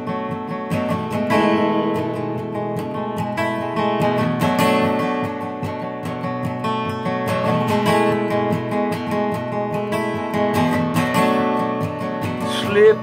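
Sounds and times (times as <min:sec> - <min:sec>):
acoustic guitar strummed: 0:00.0 - 0:13.0.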